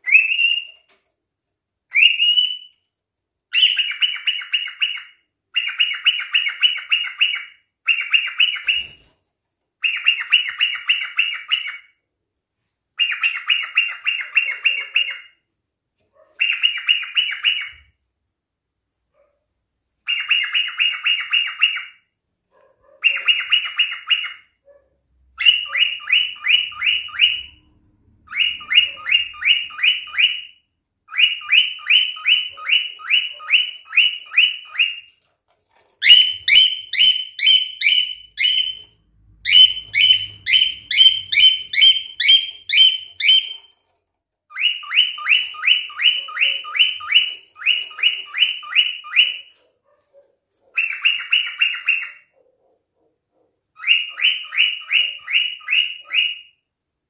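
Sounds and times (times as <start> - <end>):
cockatiel chirping: 0.0 - 1.0, 1.9 - 2.8, 3.5 - 9.1, 9.8 - 12.0, 13.0 - 15.4, 16.4 - 18.0, 20.0 - 22.1, 23.0 - 24.6, 25.4 - 35.2, 36.0 - 43.8, 44.5 - 49.6, 50.7 - 52.3, 53.8 - 56.6.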